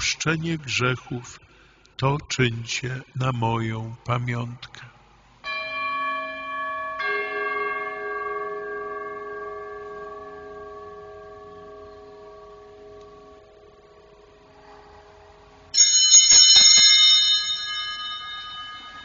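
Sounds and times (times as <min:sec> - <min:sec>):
metal bell ringing: 0:05.4 - 0:13.0, 0:15.7 - 0:19.0.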